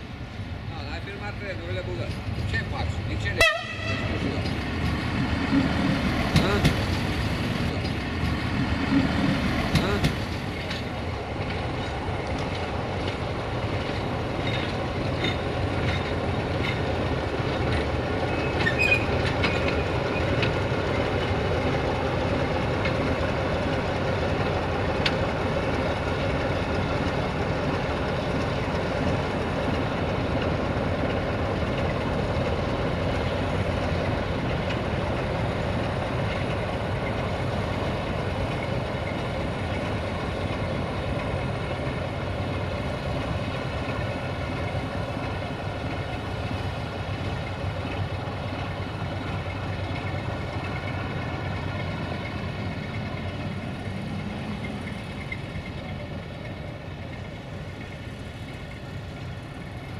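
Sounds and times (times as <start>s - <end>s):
diesel train rumbling: 0.0s - 59.9s
train wheel squeal: 18.2s - 21.0s, 49.2s - 59.9s.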